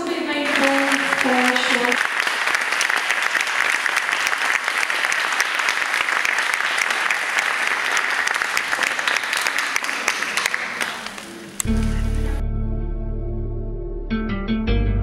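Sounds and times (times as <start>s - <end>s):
audience applauding: 0.4s - 12.4s.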